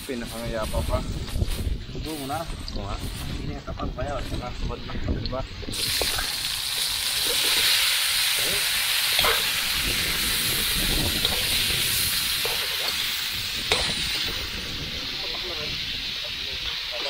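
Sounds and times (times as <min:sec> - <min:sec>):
food sizzling in hot oil: 0:05.6 - 0:17.0.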